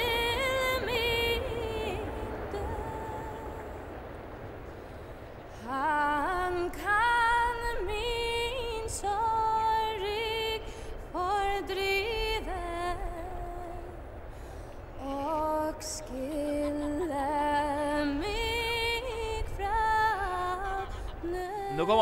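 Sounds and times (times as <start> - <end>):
woman singing solo: 15.0 - 22.0.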